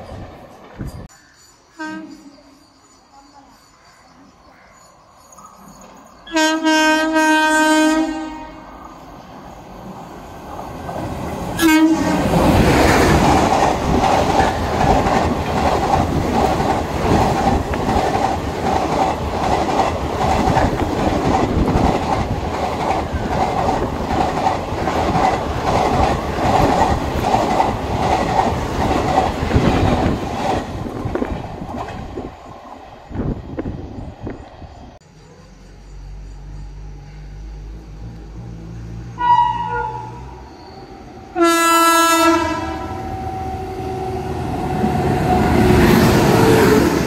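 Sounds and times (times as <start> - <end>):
train passing at speed: 0.0 - 47.0
train wheels clattering: 12.2 - 32.3.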